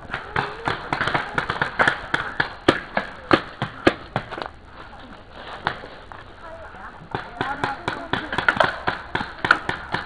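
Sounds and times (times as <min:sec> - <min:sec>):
paintball markers firing: 0:00.1 - 0:04.5, 0:07.1 - 0:10.0.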